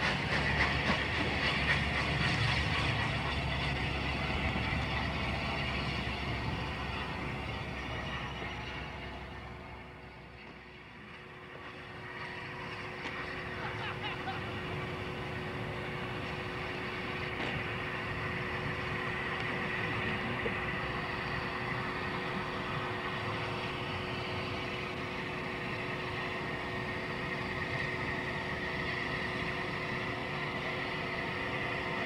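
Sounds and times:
hiss: 0.0s - 5.8s
locomotive engine rumble: 0.0s - 32.0s.

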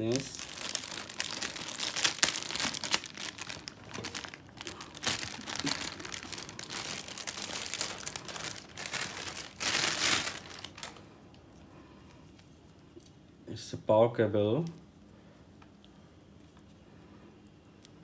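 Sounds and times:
plastic bag crinkling: 0.0s - 11.1s.

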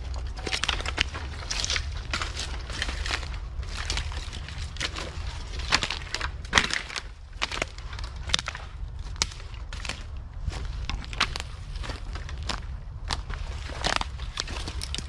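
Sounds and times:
bamboo stalks snapping: 0.0s - 10.2s
footsteps crunching on dry leaves: 0.0s - 15.0s
low steady rumble: 0.0s - 15.0s.

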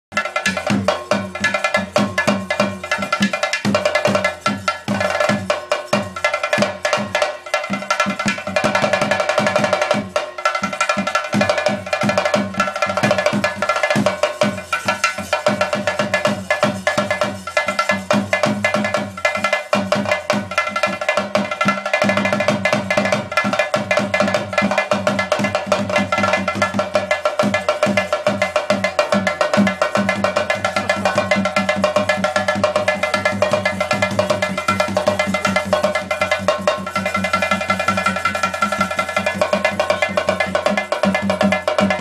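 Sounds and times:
rapid drumming on cylindrical drums: 0.1s - 42.0s.

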